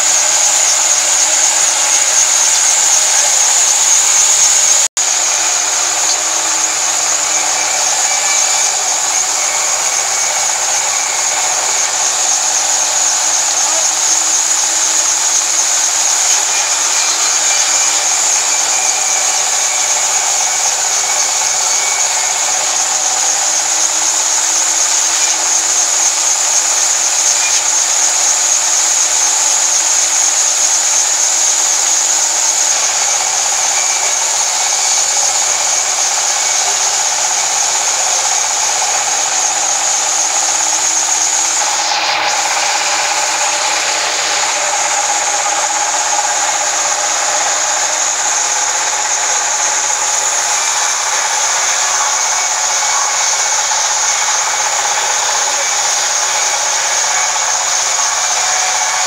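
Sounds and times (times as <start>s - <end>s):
band saw cutting log: 0.0s - 59.0s.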